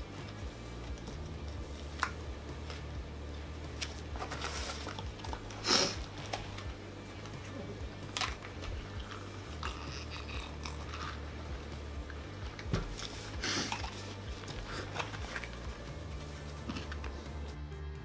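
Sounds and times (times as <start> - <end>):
low steady hum: 0.0 - 17.6
paper and cardboard rustling: 3.8 - 6.7, 12.7 - 17.6
chewing: 8.1 - 11.5.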